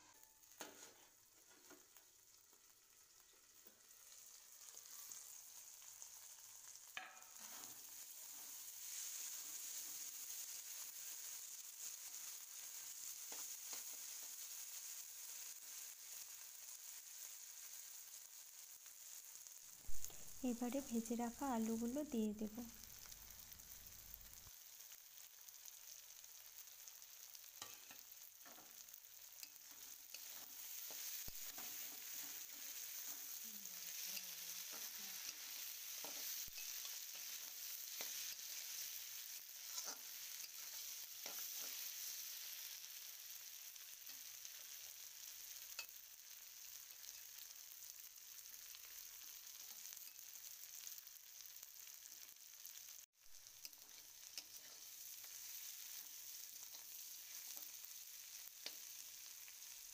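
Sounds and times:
spatula scraping pan: 0.0 - 1.8, 7.0 - 9.1, 27.5 - 42.2
food sizzling in oil: 0.0 - 59.9.

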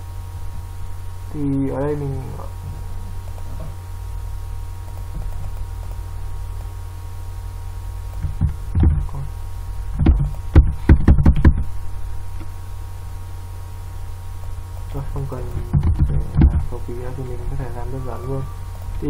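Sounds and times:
low electrical hum: 0.0 - 19.0
keyboard keystrokes: 4.9 - 5.7.

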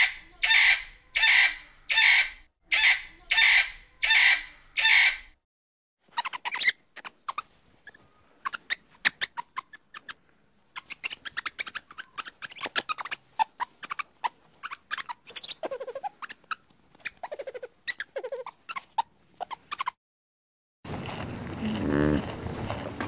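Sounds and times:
lemurs chirping: 6.1 - 20.0.

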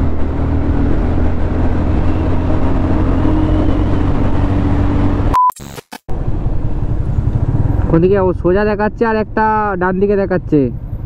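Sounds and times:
motorcycle engine hum: 0.0 - 5.3, 6.1 - 11.0
wind rumble: 0.0 - 5.3, 6.1 - 10.0
short high beep: 5.3 - 5.9.

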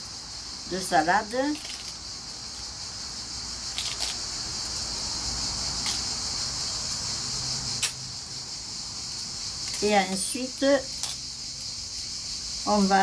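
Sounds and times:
insects chirring: 0.0 - 13.0
lettuce ribs snapping: 3.7 - 4.8, 7.8 - 8.0.

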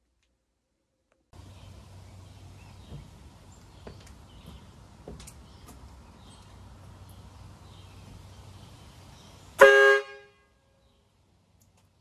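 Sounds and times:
air horn blast: 9.6 - 10.6.

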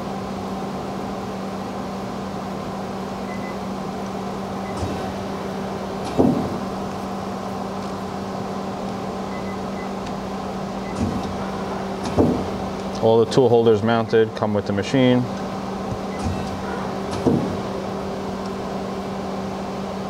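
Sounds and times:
machine hum: 0.0 - 20.0
lathe tool turret indexing: 16.0 - 17.6.

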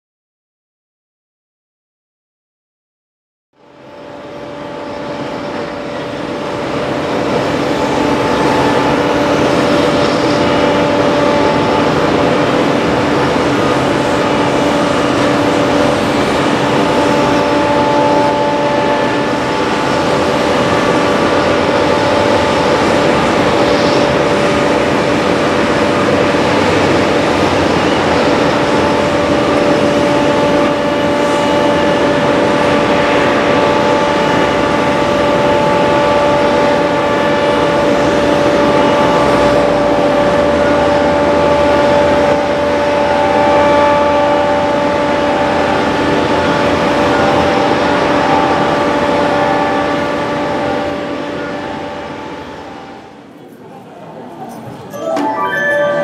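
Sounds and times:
airport machinery drone: 3.6 - 56.0.

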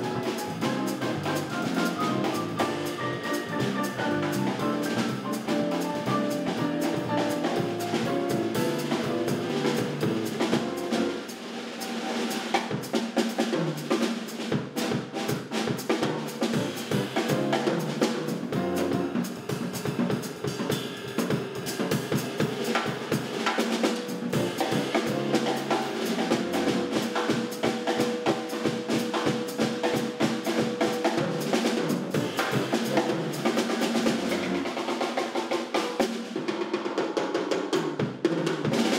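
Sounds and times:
jazz drumming with snare and cymbals: 0.0 - 38.9
electric bass: 0.1 - 11.2, 16.6 - 19.2, 26.3 - 26.9, 34.0 - 34.7.

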